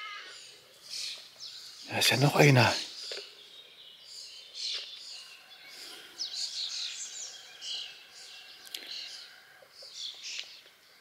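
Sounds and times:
faint outdoor background noise: 0.0s - 11.0s
songbirds chirping: 0.0s - 11.0s.

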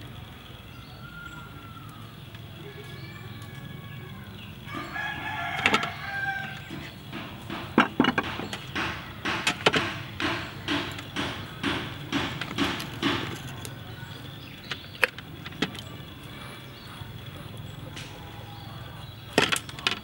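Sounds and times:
rooster crowing: 4.7s - 7.0s.

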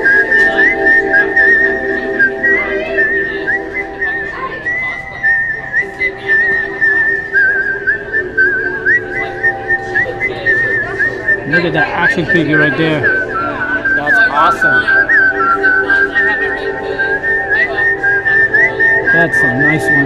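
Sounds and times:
background music with held chords: 0.0s - 20.0s
whistled tune with trills: 0.0s - 20.0s.

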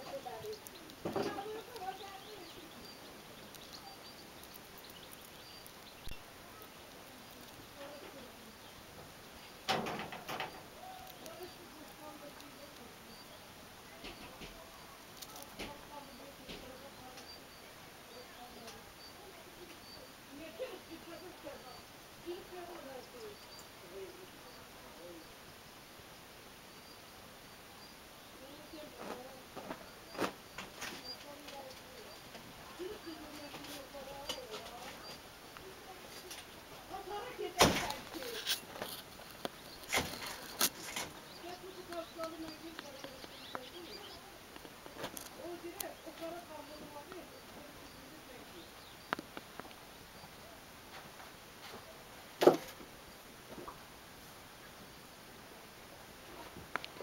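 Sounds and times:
bird chirps: 0.0s - 8.9s, 39.2s - 44.4s
faint outdoor ambience: 0.0s - 57.0s
faint steady hiss: 0.0s - 57.0s
rustling clatter: 37.1s - 41.2s.

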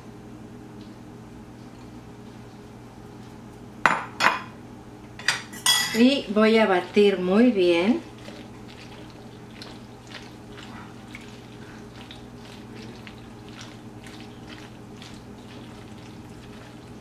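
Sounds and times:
spoon mixing wet macaroni: 6.0s - 17.0s.

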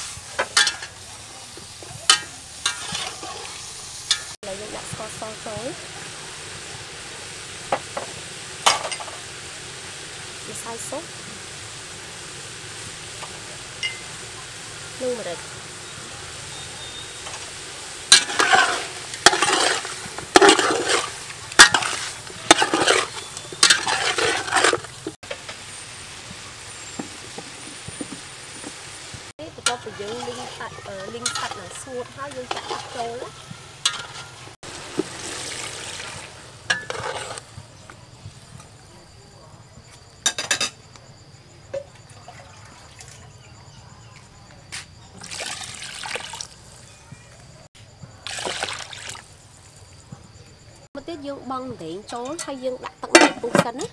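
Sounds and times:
ladle scraping through wet meat: 2.6s - 4.3s, 18.1s - 25.2s, 29.6s - 37.5s
water pouring into a metal pot: 5.0s - 25.2s, 34.6s - 37.4s, 41.9s - 43.2s, 45.1s - 46.9s, 48.2s - 49.4s.

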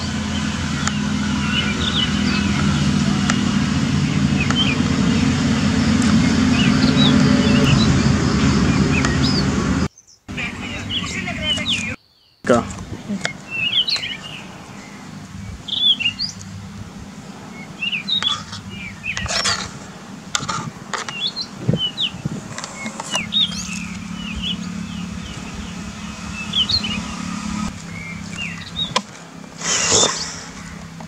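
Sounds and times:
small birds chirping: 0.0s - 31.0s
low steady hum: 12.6s - 29.6s.

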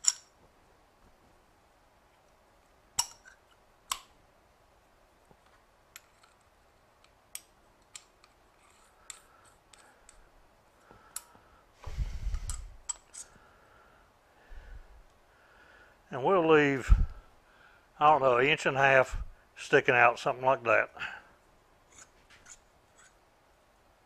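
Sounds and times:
metal parts clicking: 0.0s - 0.3s.

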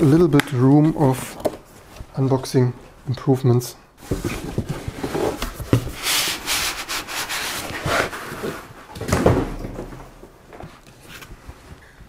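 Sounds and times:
cardboard and foam scraping: 4.0s - 8.9s.

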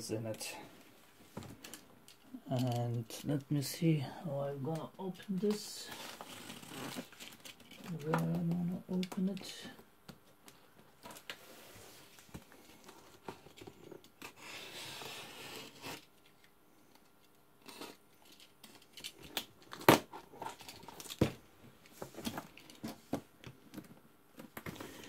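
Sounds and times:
tape and cardboard tearing: 6.0s - 7.4s, 14.2s - 16.1s
knife cutting cardboard box: 14.2s - 16.0s.

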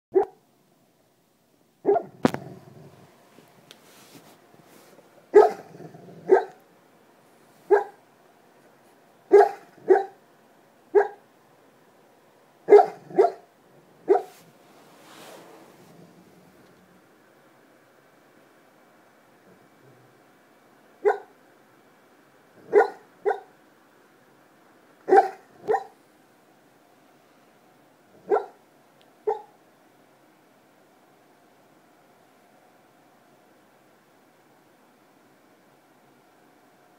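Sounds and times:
dog barking: 0.1s - 0.4s, 1.8s - 2.2s, 5.3s - 6.6s, 7.7s - 8.0s, 9.3s - 10.2s, 10.9s - 11.2s, 12.7s - 14.4s, 21.0s - 21.4s, 22.6s - 23.5s, 25.1s - 26.0s, 28.2s - 28.6s, 29.2s - 29.6s.

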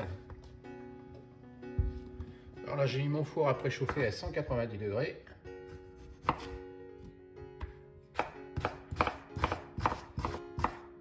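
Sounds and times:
knife cutting on wooden board: 5.6s - 6.7s, 8.2s - 10.8s.

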